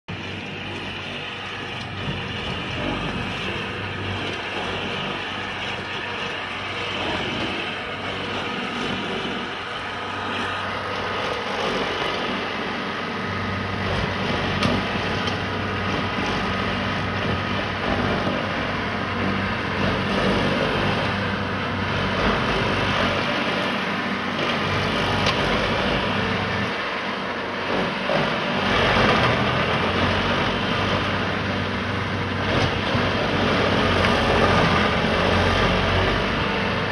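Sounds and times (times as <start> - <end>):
cutter wheel grinding stump: 0.1 - 36.9
stump grinder engine hum: 0.1 - 36.9.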